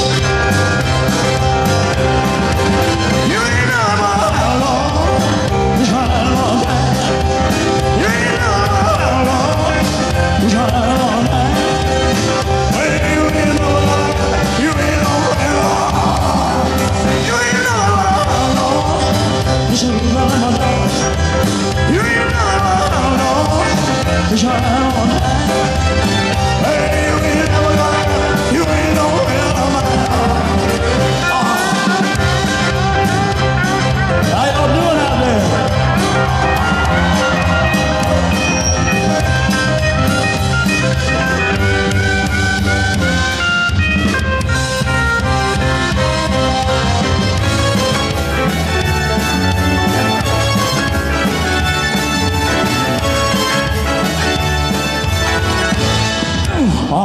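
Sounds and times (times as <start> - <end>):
live rock band playing: 0.0 - 57.0
man singing: 2.8 - 38.2, 56.4 - 57.0.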